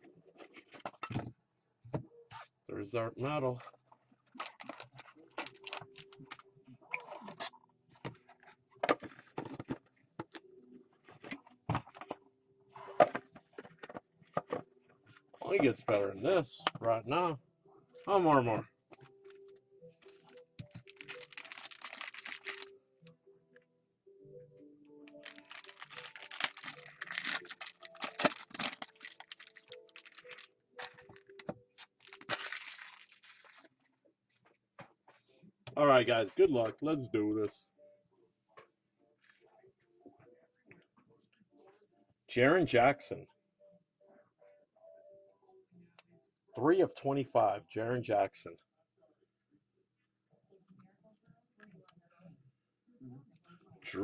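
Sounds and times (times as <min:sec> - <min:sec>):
faint background music: 0:00.0 - 0:54.0
foil pack crinkling and tearing: 0:04.4 - 0:06.1, 0:20.7 - 0:22.7, 0:25.1 - 0:33.7.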